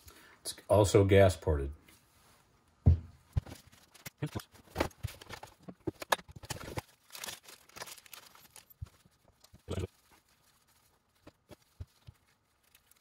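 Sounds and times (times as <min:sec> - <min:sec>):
plastic bag rustling: 0:03.4 - 0:13.0.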